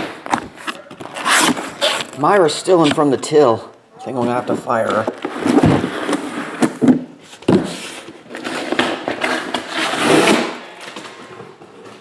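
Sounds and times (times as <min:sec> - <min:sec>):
boxes knocking: 0:04.2 - 0:07.9.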